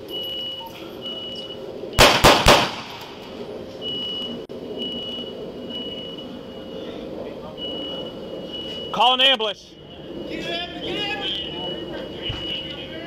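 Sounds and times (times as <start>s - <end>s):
high steady beep: 0.1s - 1.6s, 3.8s - 6.8s, 7.5s - 9.9s
gunshots: 2.0s - 3.4s.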